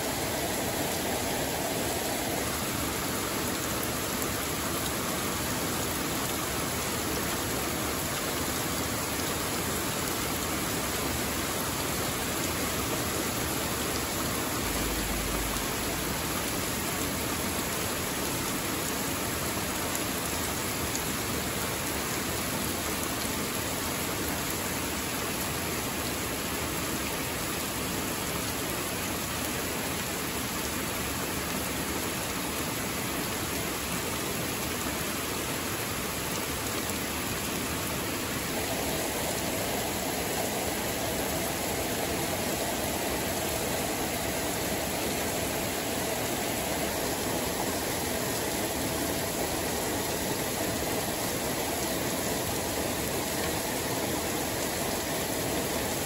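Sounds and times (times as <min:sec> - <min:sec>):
heavy rain on leaves: 0:00.0 - 0:56.0.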